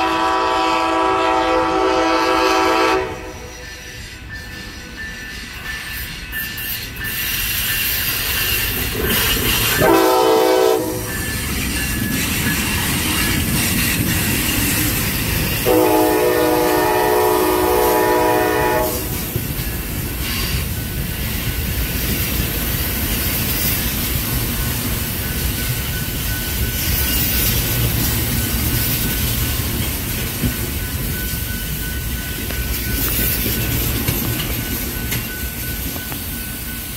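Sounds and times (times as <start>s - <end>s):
train horn blast: 0.0s - 3.6s, 9.8s - 11.2s, 15.6s - 19.2s
train cars rumbling past: 0.0s - 36.9s.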